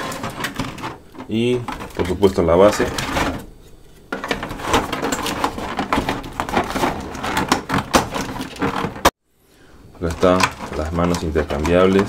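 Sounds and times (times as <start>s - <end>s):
plastic packaging crackling: 10.0s - 12.0s.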